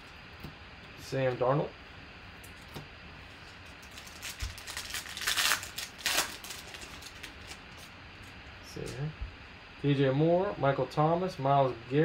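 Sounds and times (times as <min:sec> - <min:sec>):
foil wrapper tearing and crinkling: 0:03.8 - 0:07.9.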